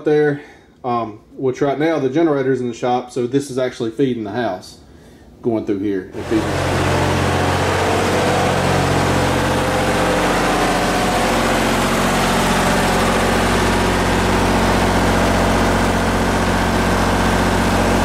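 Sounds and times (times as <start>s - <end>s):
generator engine droning: 6.2s - 18.0s.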